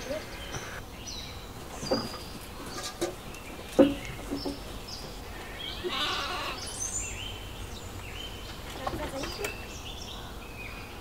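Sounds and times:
lambs bleating: 5.3 - 6.8.

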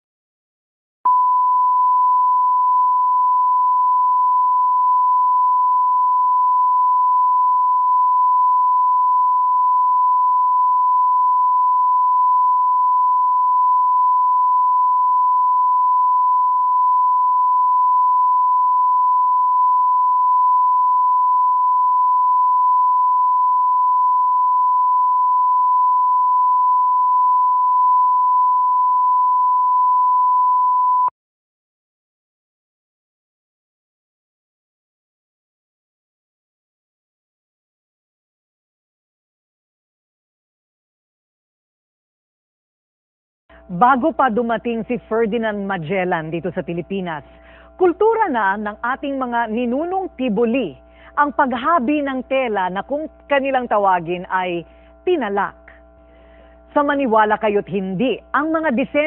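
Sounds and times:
steady test tone: 43.6 - 59.0.

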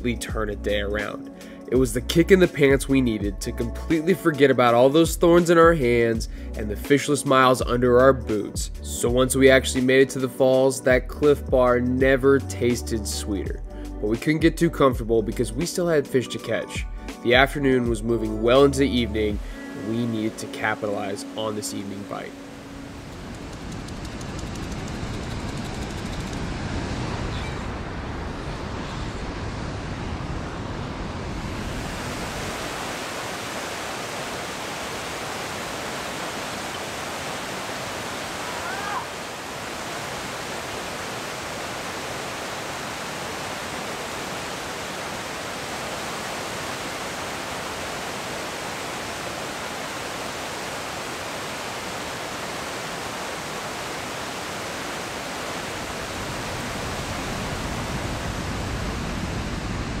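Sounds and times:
waterfall rushing: 19.4 - 23.1, 30.9 - 60.0.

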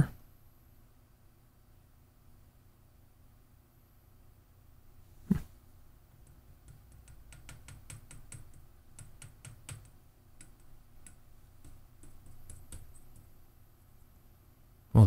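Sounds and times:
fingertip tapping on glass: 6.1 - 13.3.

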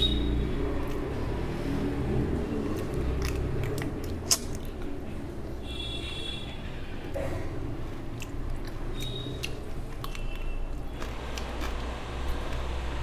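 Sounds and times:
chewing and biting food: 0.8 - 5.2, 7.8 - 13.0
wet mouth clicks and smacks: 2.6 - 5.0, 8.1 - 12.7.

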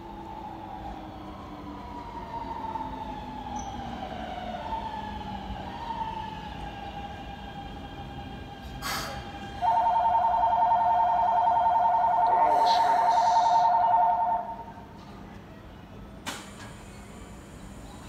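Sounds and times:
two-tone electronic departure bell: 9.6 - 14.7.

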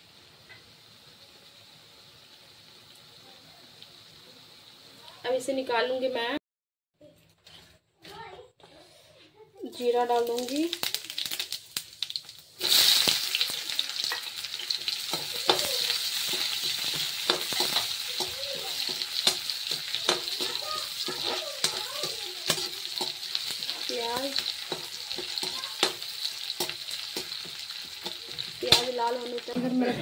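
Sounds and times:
onions sizzling in hot oil: 0.0 - 6.3, 9.6 - 30.0
metal spatula scraping a pan: 12.6 - 29.9.

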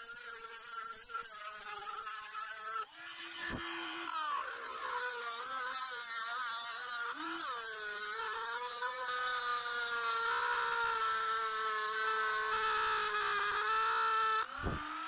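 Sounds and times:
rotary tool grinding metal: 0.0 - 15.0.

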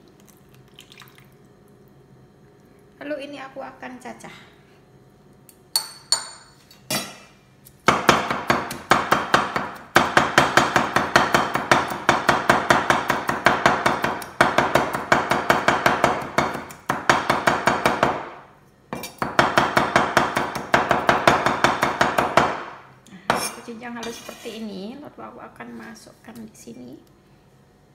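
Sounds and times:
cleaver chopping on wooden board: 7.9 - 18.4, 19.2 - 22.7.

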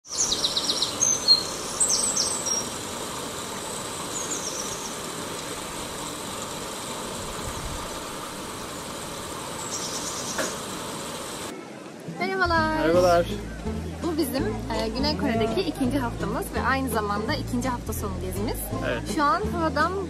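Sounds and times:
small birds chirping: 0.0 - 5.6, 8.6 - 11.5
steady outdoor hiss: 0.0 - 20.0.

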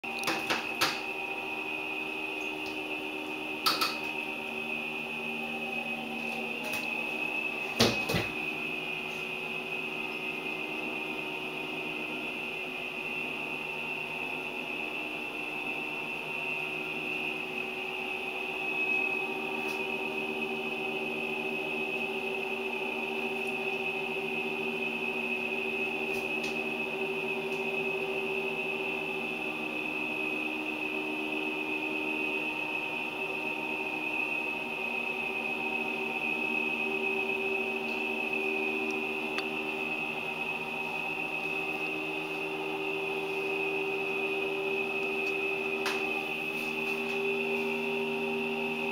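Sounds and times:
mechanical hum with whine: 0.0 - 48.9.

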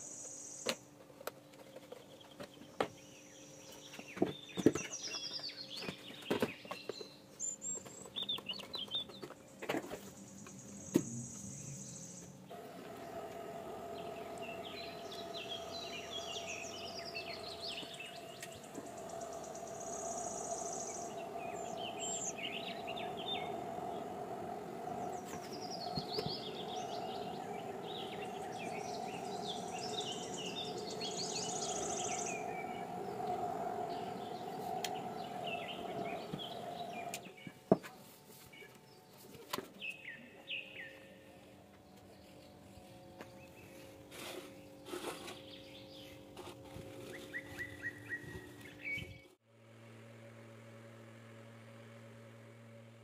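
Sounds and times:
birds chirping: 1.5 - 37.6, 39.8 - 49.4
steady hum: 10.1 - 37.8, 40.9 - 53.0.

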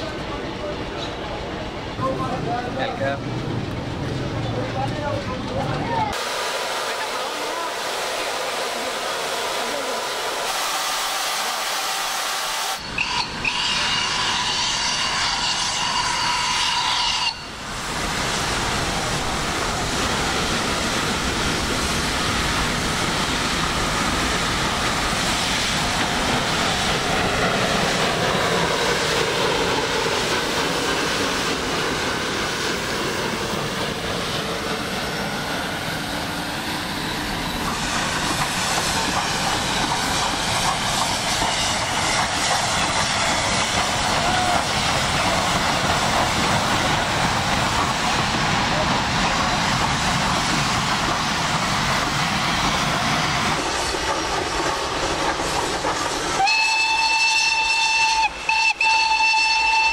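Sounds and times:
train rolling noise: 0.0 - 6.2, 6.8 - 59.9
steam locomotive working hard: 0.0 - 59.9
steam locomotive whistle: 10.5 - 17.6, 56.4 - 59.9.

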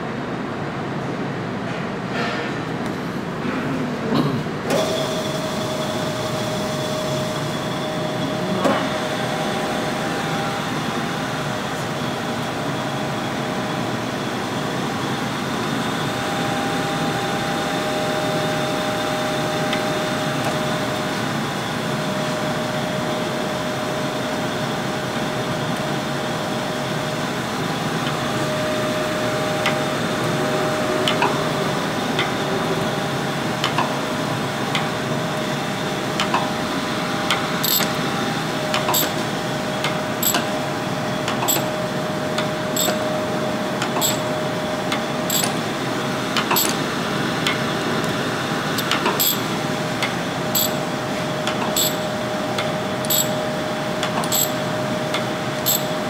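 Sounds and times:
sharp click: 37.6 - 37.9, 39.8 - 40.4, 42.8 - 43.0, 45.3 - 45.6, 46.4 - 46.8, 48.8 - 49.4, 51.5 - 52.0, 52.6 - 53.3.

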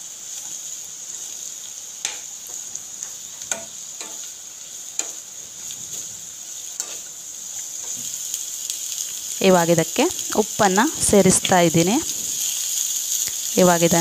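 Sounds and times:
vegetables sizzling in oil: 0.0 - 14.0
spatula scraping a pan: 2.0 - 8.2.

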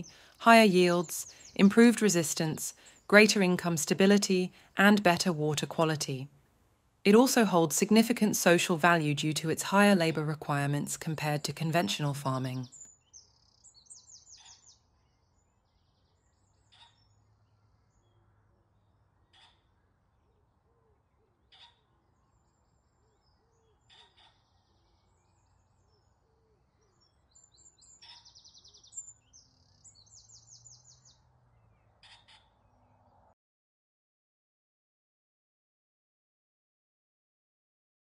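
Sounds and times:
small birds chirping and trilling: 0.0 - 4.5, 7.4 - 33.3.

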